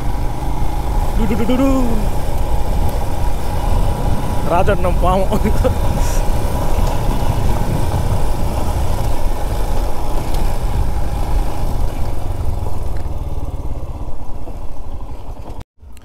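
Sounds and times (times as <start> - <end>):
motorcycle engine running: 0.0 - 15.6
wind noise on microphone: 2.0 - 12.3.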